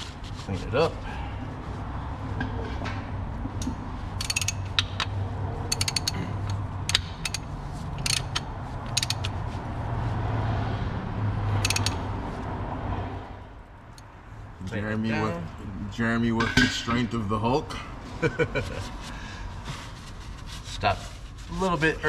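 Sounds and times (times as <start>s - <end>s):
ratchet clicking: 4.2s - 9.4s, 11.6s - 12.1s.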